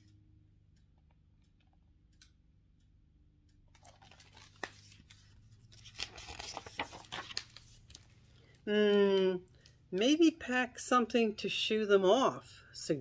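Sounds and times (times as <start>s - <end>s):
faint ticking: 0.0s - 3.6s
book pages rustling: 3.7s - 8.6s
sharp paper clicks: 3.8s - 8.5s.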